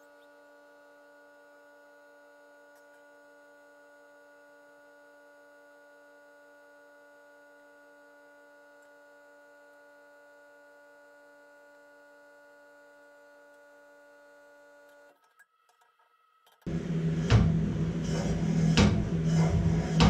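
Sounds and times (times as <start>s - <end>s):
faint steady hum: 16.7s - 20.0s.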